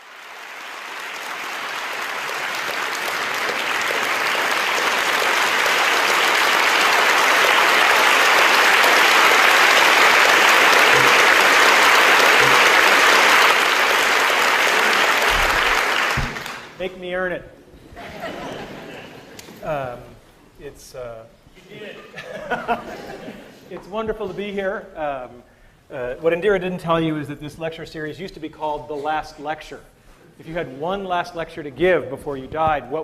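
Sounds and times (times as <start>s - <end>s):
audience clapping: 0.0s - 16.8s.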